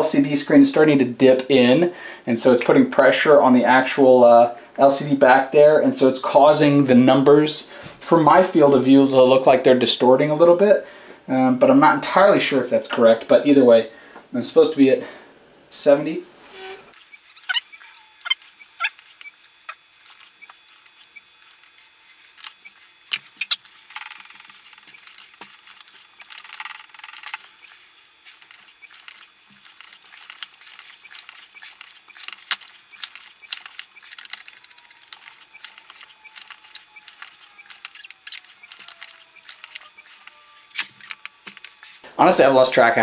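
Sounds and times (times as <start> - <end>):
hand pump clicking: 17.0 - 42.0.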